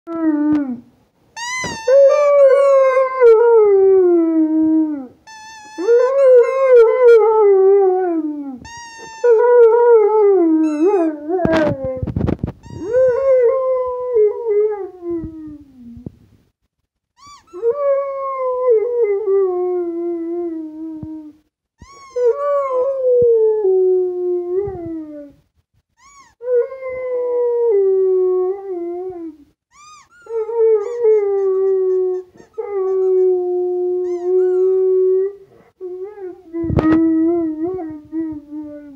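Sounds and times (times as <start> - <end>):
dog howling: 29.8 - 35.4.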